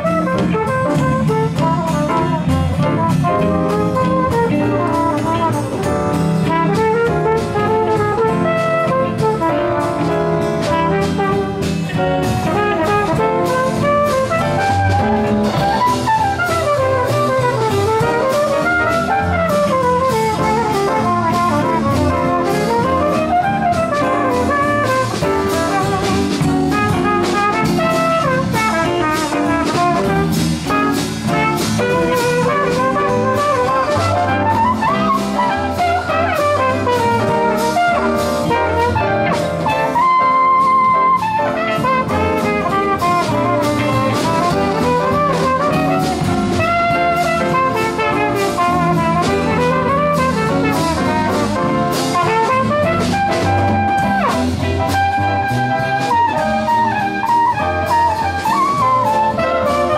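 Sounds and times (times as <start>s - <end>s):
live jazz band playing: 0.0s - 59.9s
trumpet solo: 0.0s - 59.9s.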